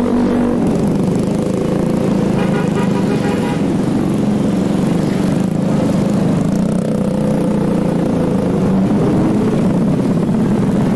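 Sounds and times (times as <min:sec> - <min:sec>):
motorcycle engine running: 0:00.0 - 0:10.9
road and wind noise: 0:00.0 - 0:10.9.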